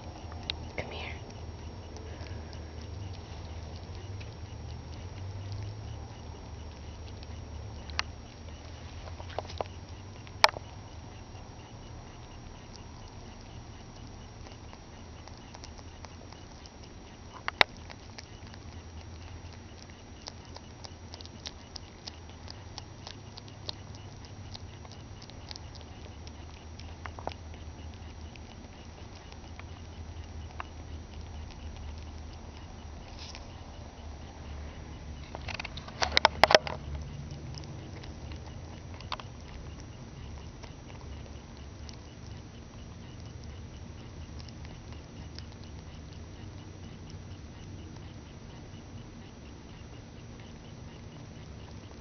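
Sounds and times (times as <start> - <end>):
rabbit chewing: 0.0 - 52.0
steady low hum: 0.0 - 52.0.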